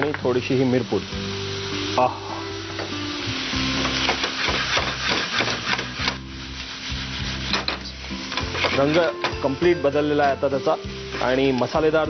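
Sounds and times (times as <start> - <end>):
spatula scraping a frying pan: 3.7 - 9.2.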